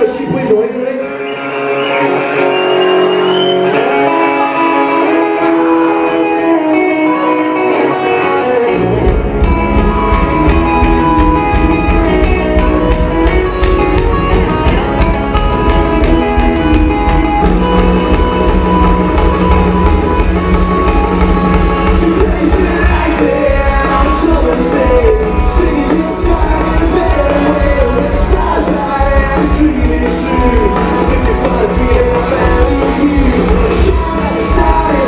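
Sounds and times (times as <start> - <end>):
electric guitars: 0.0 - 35.0
drums with steady cymbal beat: 17.4 - 35.0.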